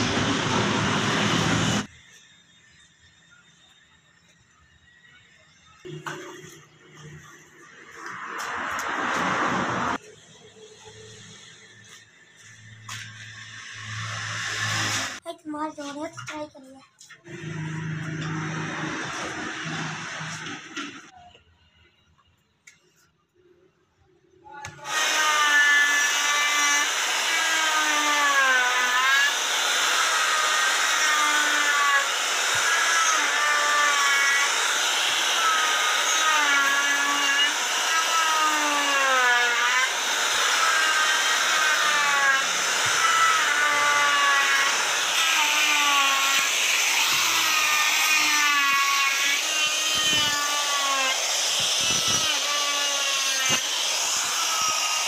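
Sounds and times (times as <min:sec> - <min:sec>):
wood router cutting wood: 0:00.0 - 0:01.9, 0:12.9 - 0:15.2, 0:24.7 - 0:55.0.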